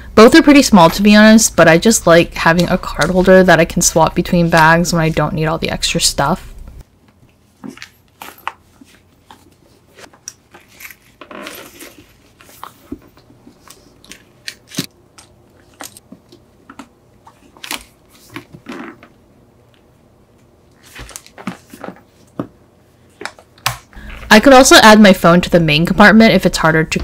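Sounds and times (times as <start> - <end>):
rustling of items: 6.9 - 24.9.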